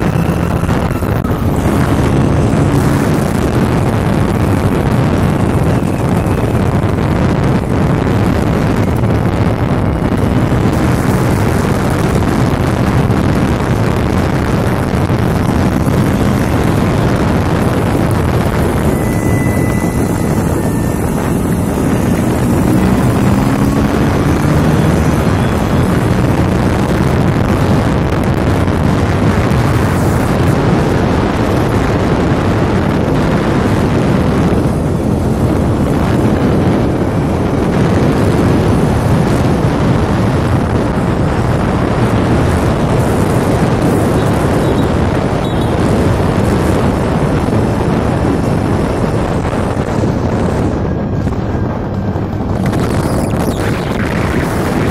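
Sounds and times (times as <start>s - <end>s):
scooter engine running: 0.0s - 30.7s
wind buffeting microphone: 0.0s - 54.9s.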